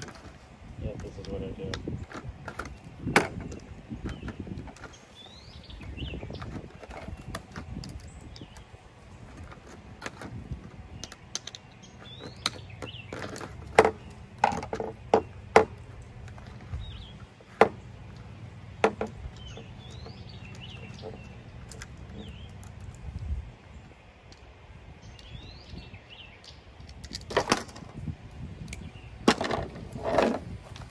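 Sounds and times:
bird chirps: 0:02.7 - 0:07.4, 0:10.9 - 0:14.3, 0:19.2 - 0:22.8, 0:25.0 - 0:26.8
sharp clicks and knocks: 0:17.5 - 0:23.2.

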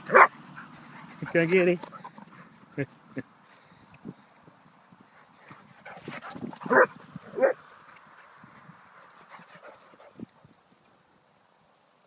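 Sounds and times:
dog barking: 0:00.1 - 0:00.3, 0:06.7 - 0:07.6.

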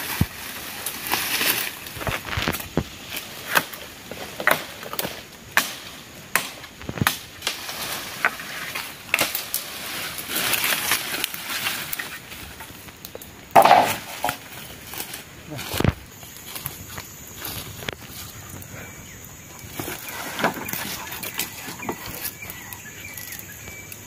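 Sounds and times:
machete chopping poles: 0:04.4 - 0:07.6, 0:08.2 - 0:12.2, 0:13.5 - 0:16.0.

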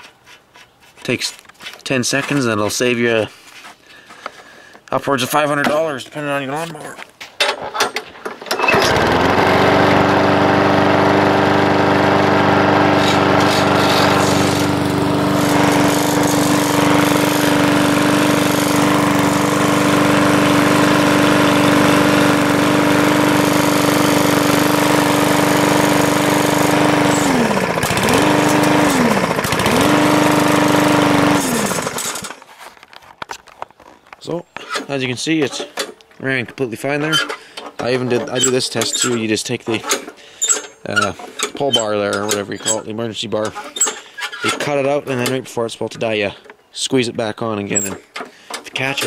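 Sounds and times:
lawn mower pull start: 0:07.4 - 0:34.0, 0:37.0 - 0:45.5, 0:47.6 - 0:49.0
lawn mower engine running: 0:08.5 - 0:32.5.

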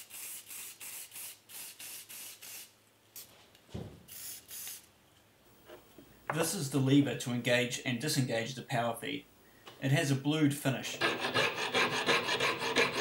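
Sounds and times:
spray paint hissing: 0:00.0 - 0:02.8, 0:04.1 - 0:04.8.

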